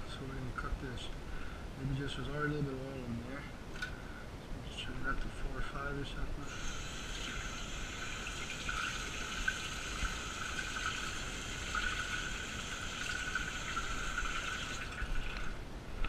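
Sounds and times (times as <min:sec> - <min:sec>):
faucet running into metal sink: 0:06.5 - 0:15.5.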